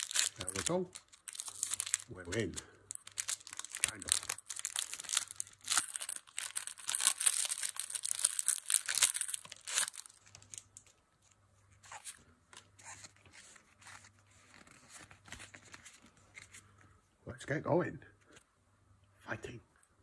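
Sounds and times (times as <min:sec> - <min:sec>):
foil wrapper tearing and crinkling: 0:00.0 - 0:10.9
cards rustling and tapping: 0:12.5 - 0:16.6.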